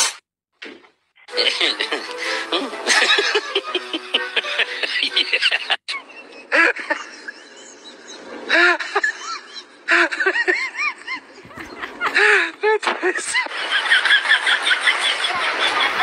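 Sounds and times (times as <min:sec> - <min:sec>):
music: 0:01.3 - 0:05.7.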